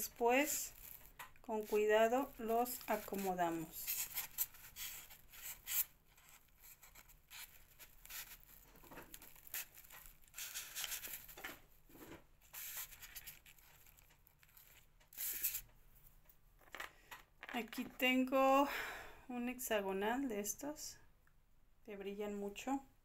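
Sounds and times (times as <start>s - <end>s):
craft materials rustling and crinkling: 0.0s - 18.0s.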